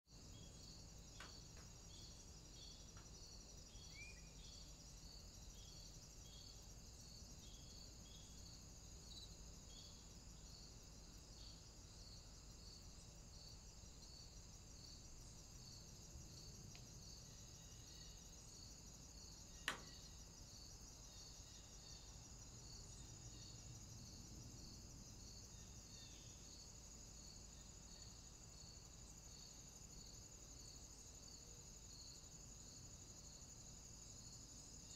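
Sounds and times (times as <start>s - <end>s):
cricket-like chirping: 0.1s - 34.9s.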